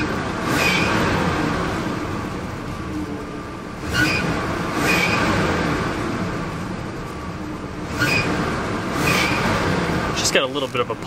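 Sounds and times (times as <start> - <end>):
car engine revving: 0.0 - 11.0.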